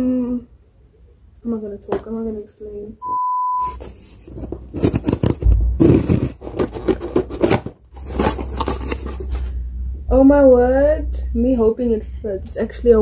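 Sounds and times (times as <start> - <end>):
test-card beep: 3.0 - 3.8
packaging rustling and scraping: 3.8 - 9.6.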